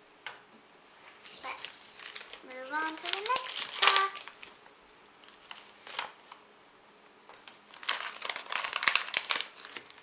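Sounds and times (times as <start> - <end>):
foil packet crinkling: 1.2 - 6.4, 7.3 - 10.0.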